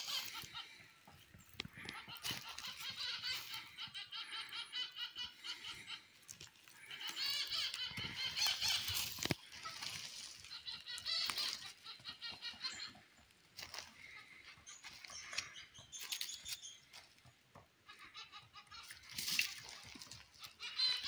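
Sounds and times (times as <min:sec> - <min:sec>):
woodpeckers calling: 0:00.0 - 0:21.0.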